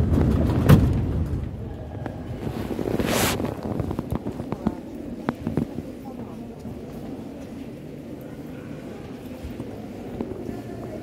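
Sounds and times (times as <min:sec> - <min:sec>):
train low rumble: 0:00.0 - 0:08.0.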